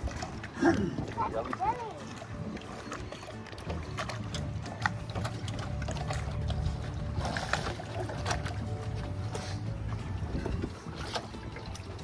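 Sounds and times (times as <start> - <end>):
boat engine low rumble: 0.0 - 12.0
wind on microphone: 9.6 - 12.0.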